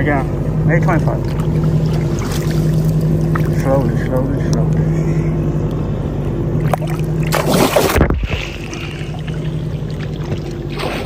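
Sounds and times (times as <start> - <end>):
low engine hum: 0.0 - 11.0
fish splashing in water: 1.2 - 3.6, 6.6 - 11.0.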